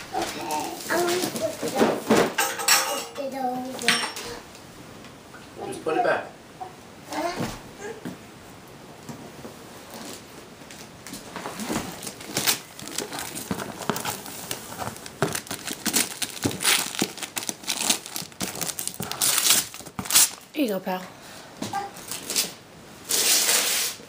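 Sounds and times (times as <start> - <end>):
wrapping paper tearing and crumpling: 0.1 - 1.8, 11.4 - 20.5, 22.0 - 24.0.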